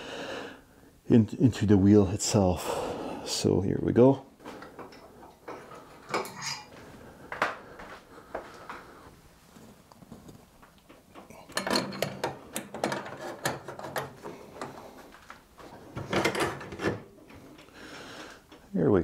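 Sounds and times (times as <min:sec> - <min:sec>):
metal clicks and scraping: 0:11.2 - 0:14.8.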